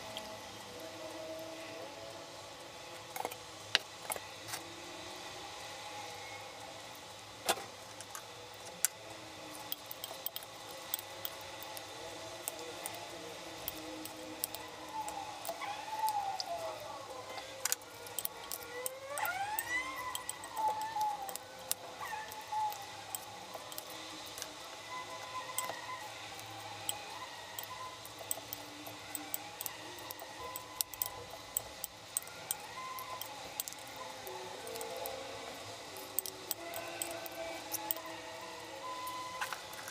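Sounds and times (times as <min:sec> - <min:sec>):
faint wavering pitched sound: 0:11.2 - 0:39.9.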